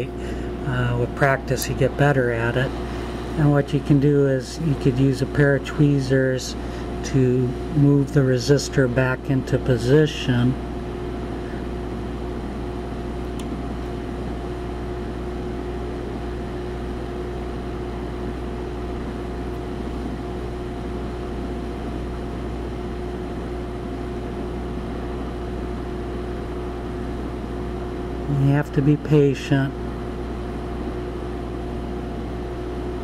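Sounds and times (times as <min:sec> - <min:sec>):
heat gun fan whining: 0:00.0 - 0:33.0.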